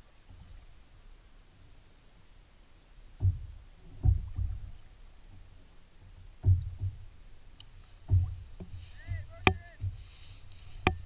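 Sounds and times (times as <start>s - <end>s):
knocks on hollow plastic hull: 3.2s - 4.7s, 6.4s - 7.1s, 8.1s - 10.0s.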